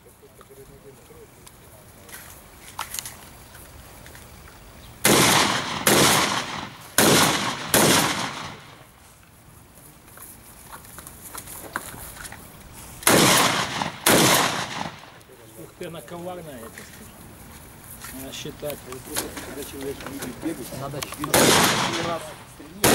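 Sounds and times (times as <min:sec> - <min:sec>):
rifle gunshots: 0:05.0 - 0:08.9, 0:13.0 - 0:15.2, 0:21.3 - 0:22.9.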